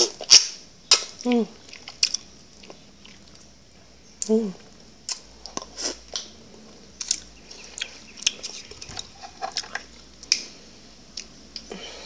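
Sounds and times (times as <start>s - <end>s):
wet mouth eating sounds: 0.0s - 3.5s, 7.0s - 10.5s.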